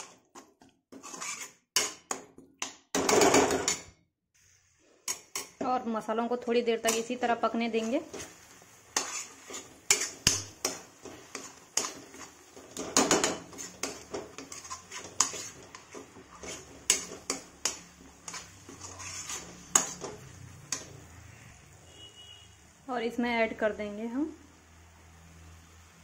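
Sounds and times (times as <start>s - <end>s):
metal spatula scraping metal pan: 0.0s - 2.2s, 5.0s - 22.3s.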